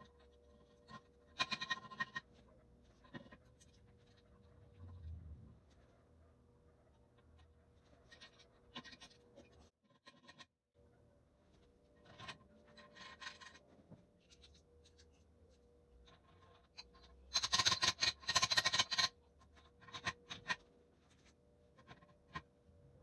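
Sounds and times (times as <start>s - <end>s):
faint steady hum: 10.8s - 23.0s.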